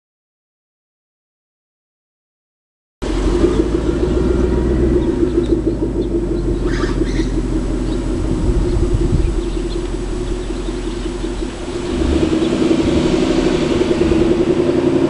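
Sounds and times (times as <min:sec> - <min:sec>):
car exhaust note cruising: 0:03.0 - 0:15.0.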